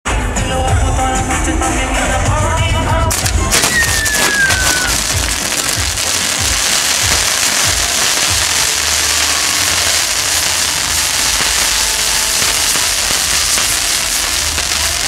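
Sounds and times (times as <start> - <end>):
fireworks hissing and crackling: 3.1 - 15.0.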